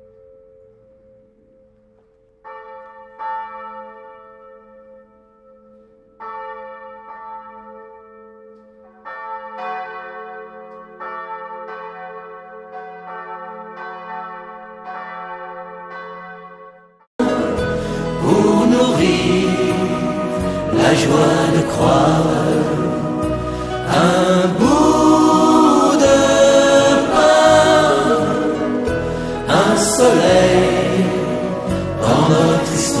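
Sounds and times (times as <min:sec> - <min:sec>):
church bells ringing: 0:00.0 - 0:33.0
loud music: 0:17.2 - 0:33.0.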